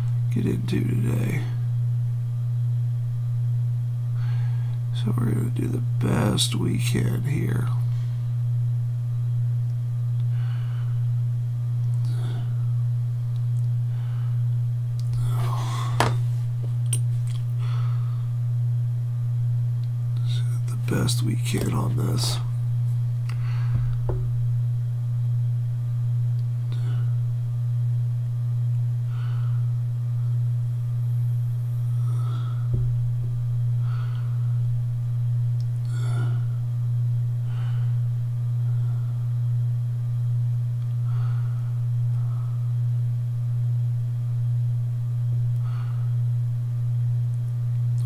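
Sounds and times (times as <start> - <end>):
deep pulsing hum: 0.0 - 48.0.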